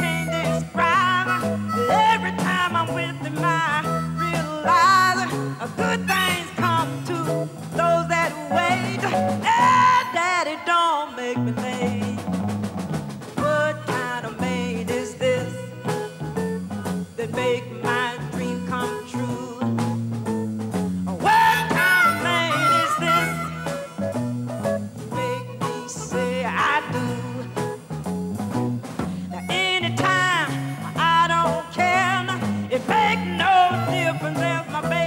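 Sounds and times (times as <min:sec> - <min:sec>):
harmonica: 0:00.0 - 0:07.5, 0:15.2 - 0:28.0, 0:29.1 - 0:35.0
woman singing blues: 0:00.0 - 0:12.4, 0:13.3 - 0:35.0
blues band playing live: 0:00.0 - 0:35.0.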